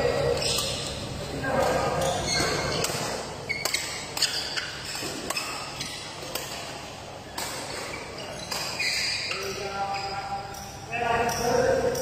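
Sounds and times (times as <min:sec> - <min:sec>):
shoes squeaking on court: 0:00.0 - 0:11.9
rackets striking shuttlecock: 0:00.2 - 0:09.8.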